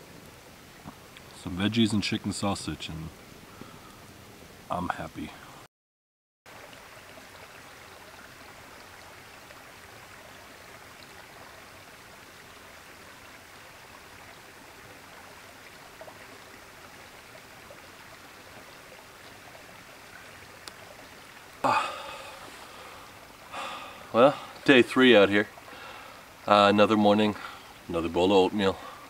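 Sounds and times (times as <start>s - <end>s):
creek water rushing over rocks: 6.5s - 29.0s.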